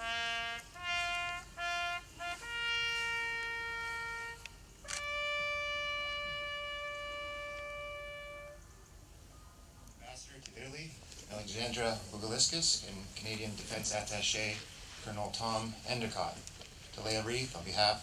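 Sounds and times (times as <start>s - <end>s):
bugle call: 0.0s - 8.8s.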